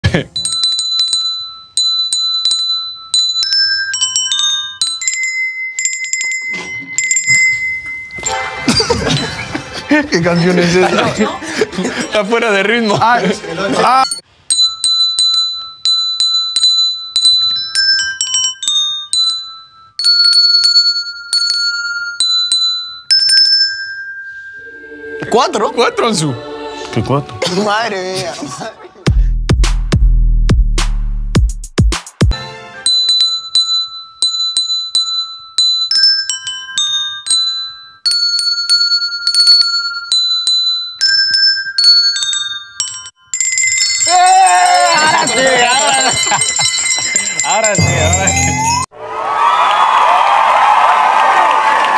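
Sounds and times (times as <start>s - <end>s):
handbells ringing a melody: 0.3s - 11.6s, 12.7s - 24.9s, 32.8s - 48.9s.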